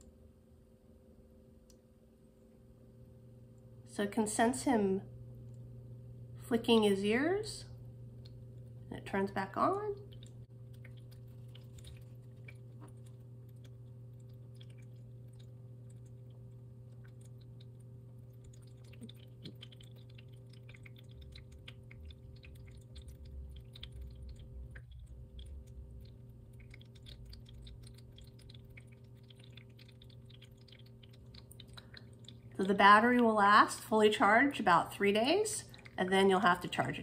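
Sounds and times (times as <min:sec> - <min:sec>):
water fountain pump hum: 0:01.7 - 0:37.0
cat lapping water: 0:07.7 - 0:33.4, 0:35.0 - 0:36.8.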